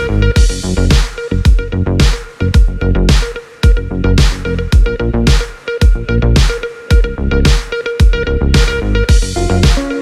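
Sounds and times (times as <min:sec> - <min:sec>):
kick drum thumps: 0:00.4 - 0:09.9
electronic dance music: 0:08.6 - 0:10.0
synth notes: 0:09.1 - 0:10.0.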